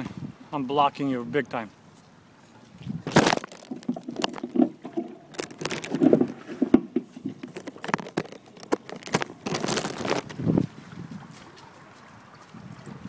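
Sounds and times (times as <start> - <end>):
handling noise on microphone: 2.9 - 11.6.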